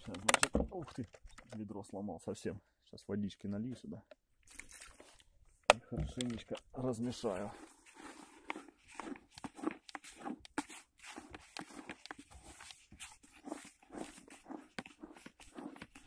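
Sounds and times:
hand kneading bait in a bucket: 4.4s - 5.4s, 6.1s - 16.0s.

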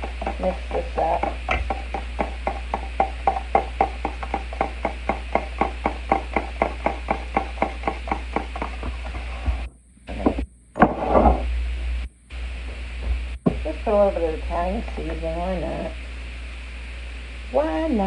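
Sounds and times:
fork beating liquid in plastic container: 0.0s - 9.3s.

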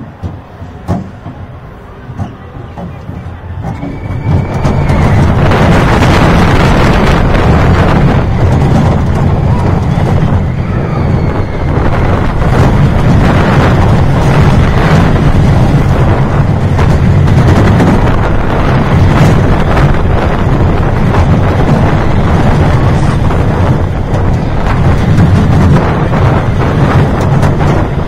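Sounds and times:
roller coaster rumble: 0.0s - 28.0s
wind buffeting microphone: 0.0s - 28.0s.

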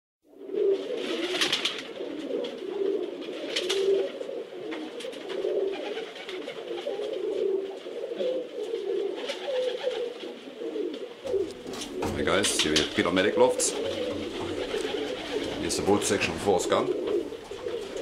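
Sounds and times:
pigeons cooing: 0.3s - 18.0s
brief rustles: 11.3s - 13.1s.

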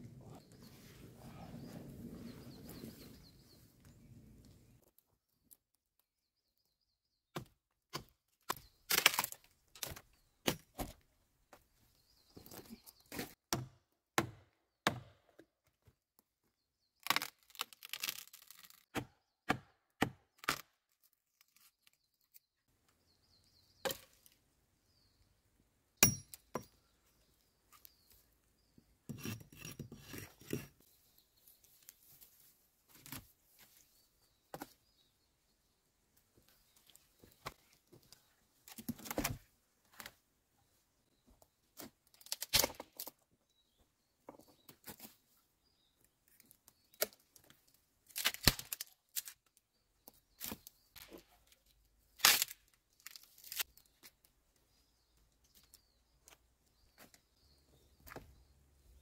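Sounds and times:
dead branches cracking: 8.5s - 10.0s, 17.0s - 18.9s, 42.1s - 43.1s, 48.1s - 49.4s, 52.2s - 53.9s
twigs rustling: 17.0s - 18.9s, 52.2s - 54.1s.

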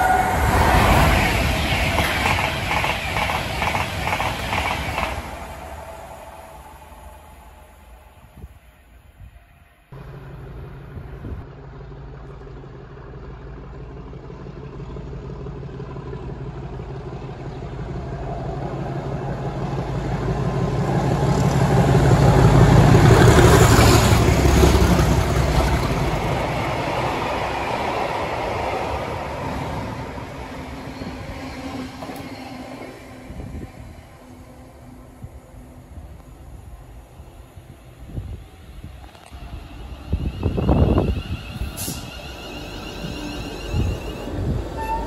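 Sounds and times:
diesel locomotive engines passing: 0.0s - 45.0s.

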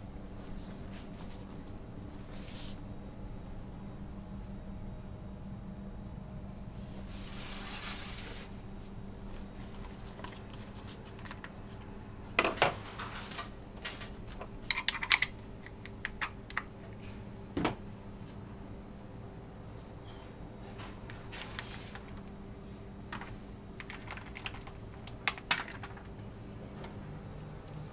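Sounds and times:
steady low hum: 0.0s - 27.9s
air hiss: 7.0s - 8.6s.

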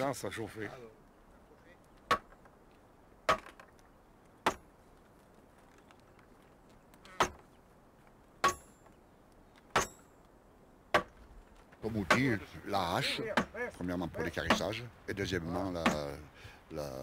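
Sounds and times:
axe chopping log: 2.1s - 2.4s, 3.2s - 3.7s, 4.4s - 4.7s, 7.1s - 7.5s, 10.9s - 11.2s, 12.0s - 12.4s.

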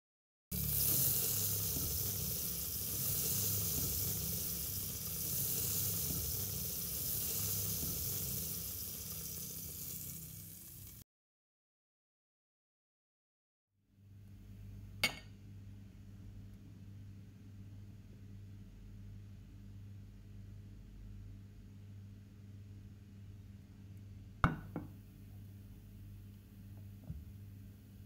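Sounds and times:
food frying sizzle: 0.5s - 11.0s.

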